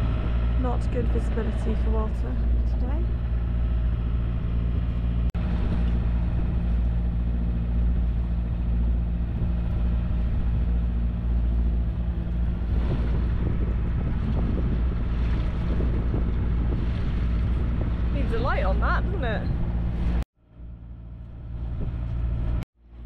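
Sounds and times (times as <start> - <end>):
wind on microphone: 0.0 - 20.2, 21.2 - 22.6
boat engine running: 0.0 - 23.0.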